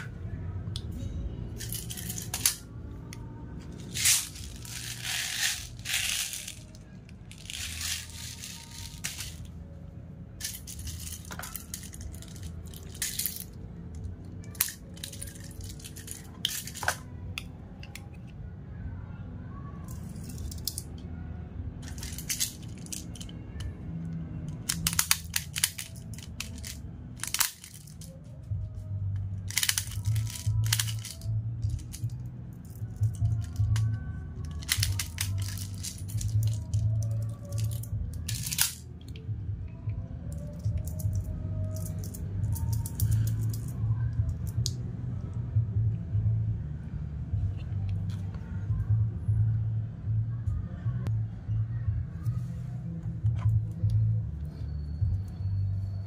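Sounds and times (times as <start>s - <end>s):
background music: 0.0s - 18.7s, 19.6s - 56.0s
plastic pellets rattling and clicking: 1.6s - 2.7s, 3.8s - 9.5s, 10.4s - 13.6s, 14.4s - 17.0s, 21.8s - 23.4s, 24.5s - 28.2s, 29.5s - 39.2s.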